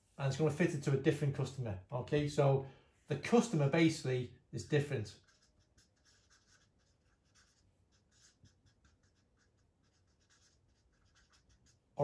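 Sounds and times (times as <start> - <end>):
marker pen writing on paper: 5.2 - 12.0.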